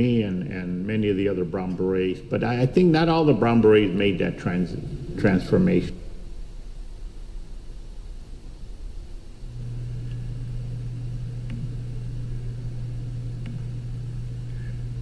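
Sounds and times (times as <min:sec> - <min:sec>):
steady low hum: 0:00.0 - 0:15.0
faint clicks: 0:10.0 - 0:10.3, 0:13.3 - 0:13.8.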